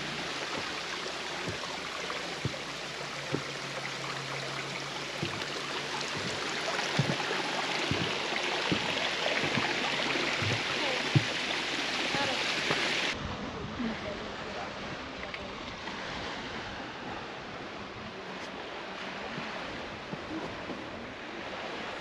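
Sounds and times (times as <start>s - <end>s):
footsteps on trail: 0.0s - 3.6s, 5.1s - 12.4s
stream running over rocks: 0.0s - 13.2s.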